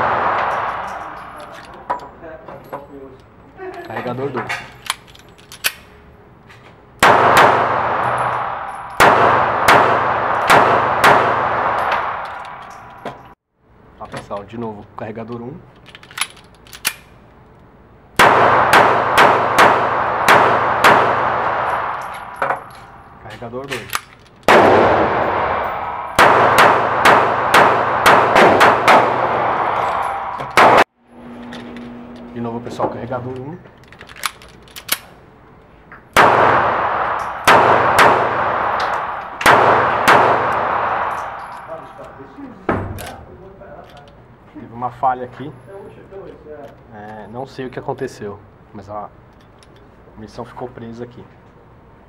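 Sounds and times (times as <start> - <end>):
pistol shots echoing indoors: 7.0 - 12.9, 18.2 - 23.0, 24.5 - 30.8, 36.2 - 42.1.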